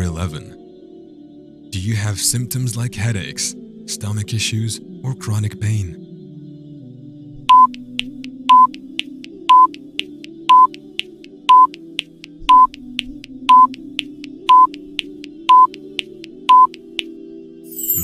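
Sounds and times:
soft background music: 0:00.0 - 0:18.0
short electronic beeps: 0:07.5 - 0:07.7, 0:08.5 - 0:08.7, 0:09.5 - 0:09.7, 0:10.5 - 0:10.7, 0:11.5 - 0:11.7, 0:14.5 - 0:14.7, 0:15.5 - 0:15.7, 0:16.5 - 0:16.8.

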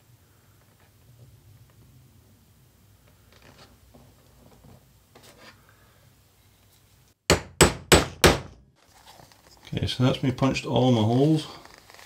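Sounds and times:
hammer striking hole punch: 0:07.3 - 0:08.6
leather scratching: 0:11.0 - 0:12.0.

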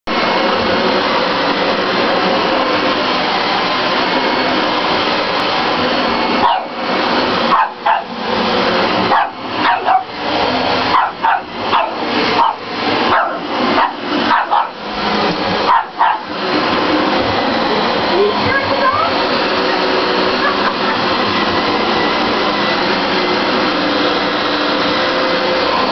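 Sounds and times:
vacuum cleaner running on carpet: 0:00.1 - 0:25.9
puppy barking: 0:06.4 - 0:06.7, 0:07.5 - 0:08.1, 0:09.1 - 0:10.2, 0:10.9 - 0:14.8, 0:15.6 - 0:16.4.

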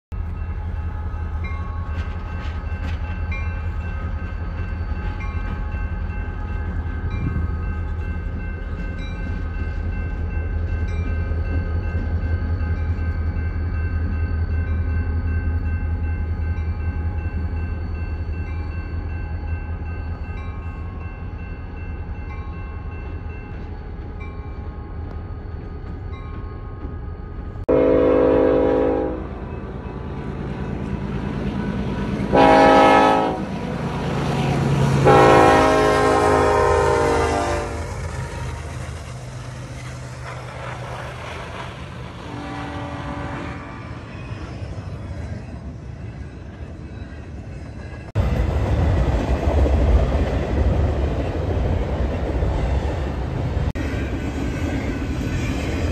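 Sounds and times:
diesel locomotive engine rumbling: 0:00.1 - 0:55.9
multi-note train horn: 0:27.7 - 0:29.4, 0:32.3 - 0:33.5, 0:35.0 - 0:38.0, 0:42.1 - 0:44.1.

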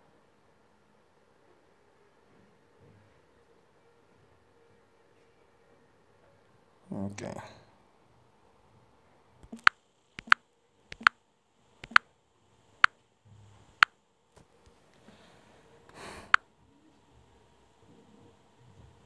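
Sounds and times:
phone taps and button clicks: 0:09.4 - 0:11.1, 0:11.8 - 0:12.0
soft clicks: 0:09.4 - 0:11.1, 0:11.8 - 0:12.0
person sniffing: 0:15.9 - 0:16.4.

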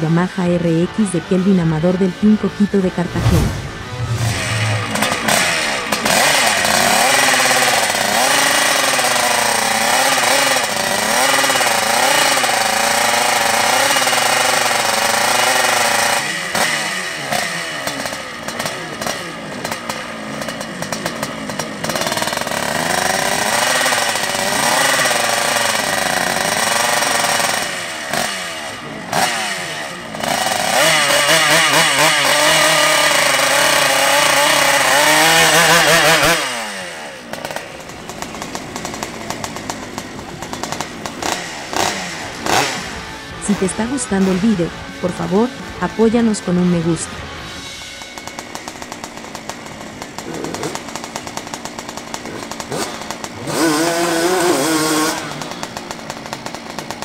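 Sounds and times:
two-stroke engine revving: 0:00.0 - 0:57.0.

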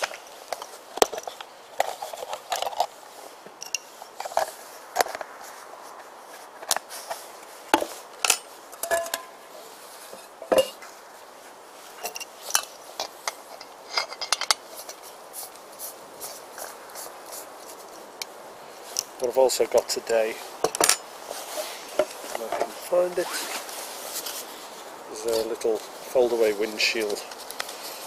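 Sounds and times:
metal pot clinks and rattles: 0:03.6 - 0:04.4, 0:08.2 - 0:09.4, 0:10.4 - 0:10.8, 0:12.0 - 0:14.6.

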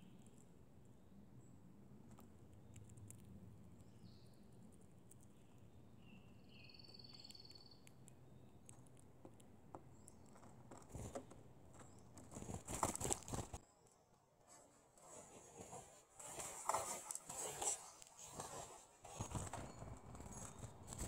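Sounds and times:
high whistled bird calls: 0:06.0 - 0:07.8
bird wings fluttering: 0:12.2 - 0:13.6.

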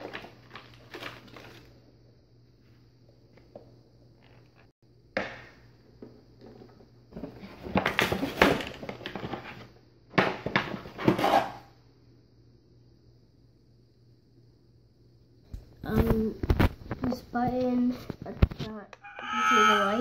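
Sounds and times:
plastic packaging rustling: 0:00.0 - 0:01.8.

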